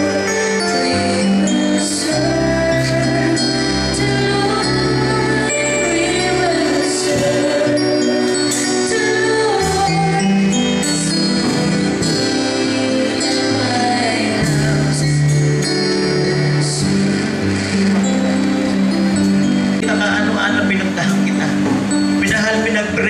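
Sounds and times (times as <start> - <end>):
instrumental accompaniment: 0.0 - 23.0
sustained bass notes: 0.0 - 23.0.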